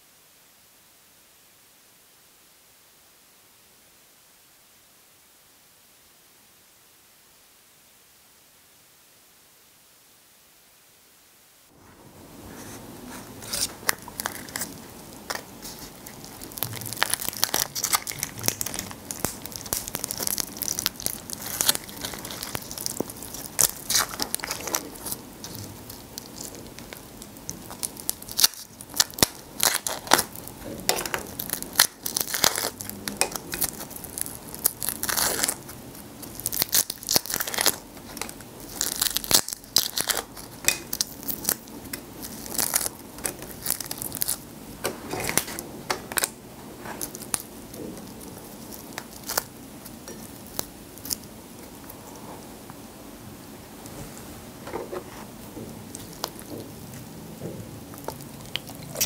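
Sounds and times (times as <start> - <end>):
prawn shells cracking: 13.6 - 44.4, 47.0 - 51.3.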